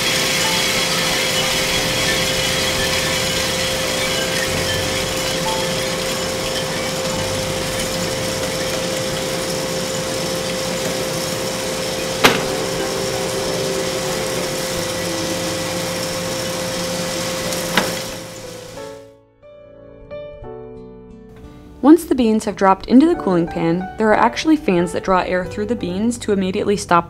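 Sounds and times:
cooling fan whirring with a hum: 0:00.0 - 0:18.8.

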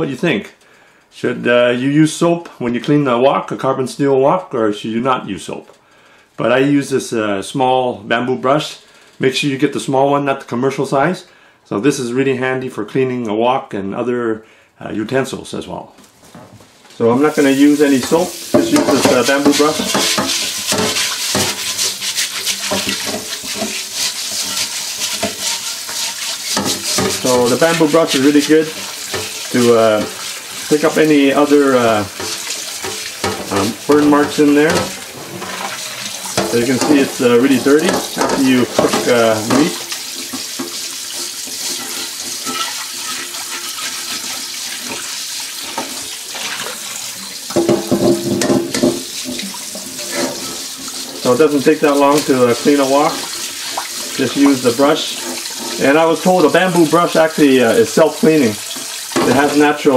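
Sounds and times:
brush scrubbing a wok: 0:17.2 - 0:59.9
tap water running: 0:17.2 - 0:59.9.

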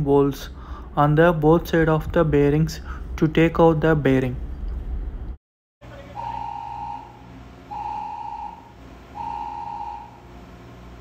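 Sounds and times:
low machinery hum: 0:00.0 - 0:11.0
electronic warning beeps: 0:05.9 - 0:10.3.

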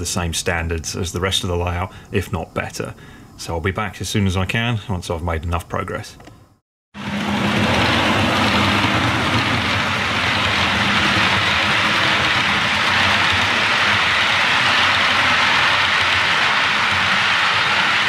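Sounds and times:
model train rumbling on track: 0:07.0 - 0:18.0.

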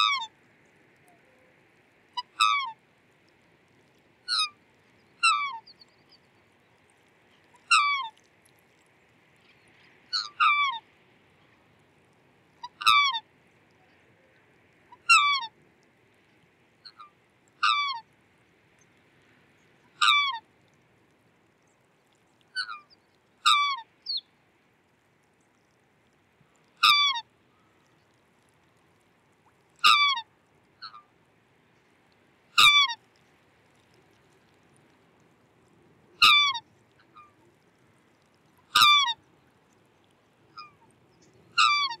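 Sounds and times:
swan bugling calls: 0:00.0 - 0:00.4, 0:02.1 - 0:02.8, 0:04.2 - 0:06.2, 0:07.4 - 0:08.2, 0:10.1 - 0:11.6, 0:12.6 - 0:13.3, 0:14.9 - 0:15.6, 0:16.8 - 0:18.1, 0:19.8 - 0:20.4, 0:22.5 - 0:24.3, 0:26.8 - 0:27.9, 0:29.8 - 0:31.1, 0:32.5 - 0:33.0, 0:36.2 - 0:39.7, 0:40.5 - 0:42.0.

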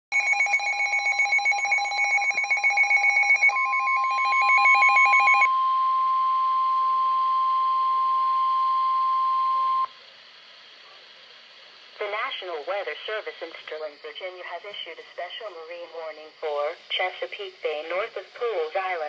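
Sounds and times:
pulsing electronic alarm beeps: 0:00.2 - 0:09.9
steady warning tone: 0:00.2 - 0:10.0.

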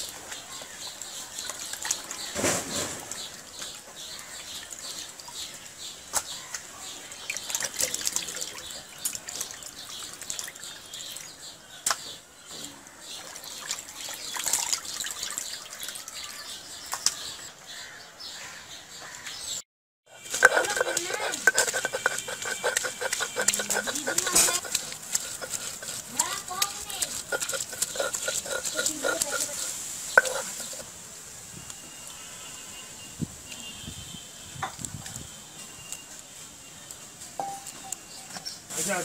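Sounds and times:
water splashing and sloshing: 0:00.0 - 0:12.1, 0:13.1 - 0:17.2, 0:20.2 - 0:31.0.

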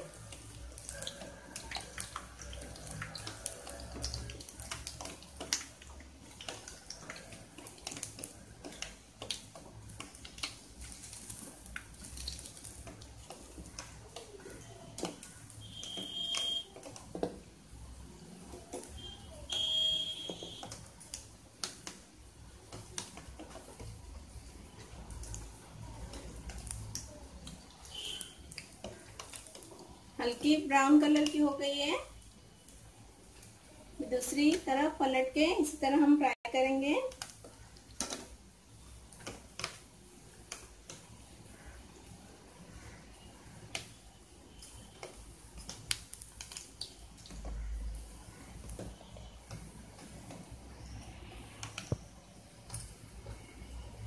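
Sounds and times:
oil sizzling with pops: 0:00.0 - 0:54.0
short high-pitched beeps: 0:15.6 - 0:16.7, 0:19.0 - 0:20.6.

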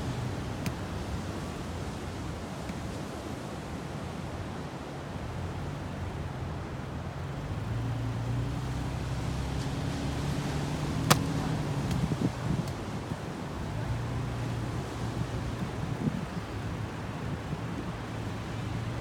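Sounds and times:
low engine hum: 0:05.3 - 0:19.0
wind noise: 0:10.5 - 0:19.0.

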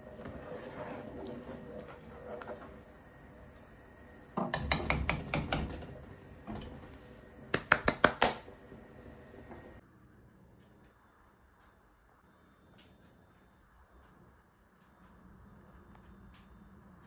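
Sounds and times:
spoon stirring gravy: 0:00.0 - 0:03.6.

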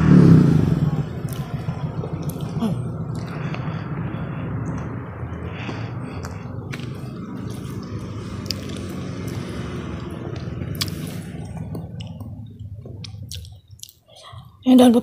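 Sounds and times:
close chewing with wet mouth sounds: 0:01.3 - 0:03.6, 0:05.6 - 0:14.5
sharp mouth clicks: 0:02.2 - 0:03.7, 0:08.3 - 0:14.1.

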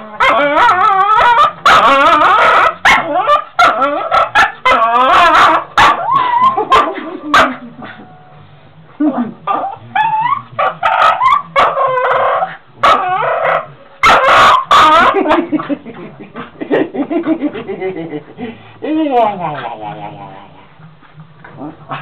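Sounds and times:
dog yipping and howling: 0:00.0 - 0:08.0, 0:09.5 - 0:15.4.

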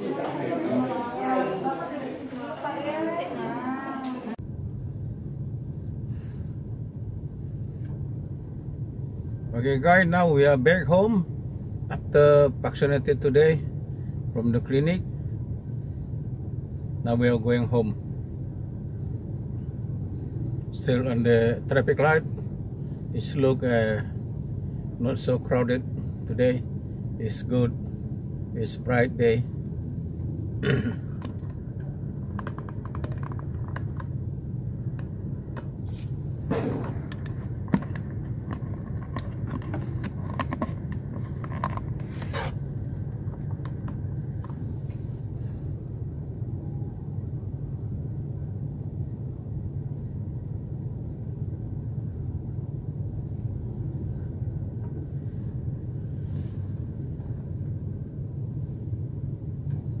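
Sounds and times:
car idling low rumble: 0:04.3 - 1:00.0
clicks and rustles: 0:32.2 - 0:34.2, 0:36.8 - 0:42.6.

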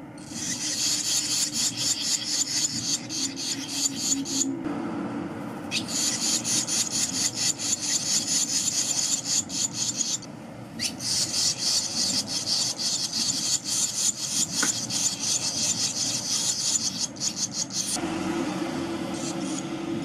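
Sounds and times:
nestlings raspy begging calls: 0:00.2 - 0:04.6, 0:05.7 - 0:18.0, 0:19.1 - 0:19.8.

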